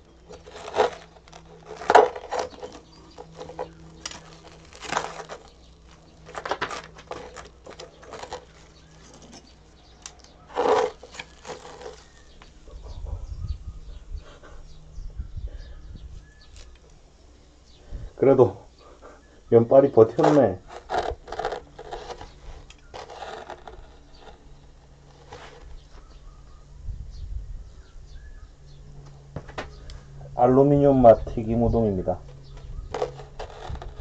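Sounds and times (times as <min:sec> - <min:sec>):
metal tongs scraping metal: 0:06.2 - 0:12.2.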